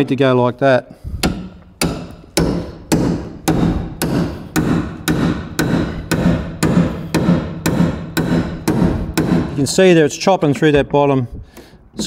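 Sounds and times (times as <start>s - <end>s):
hammer blows on chisel: 1.0s - 10.0s.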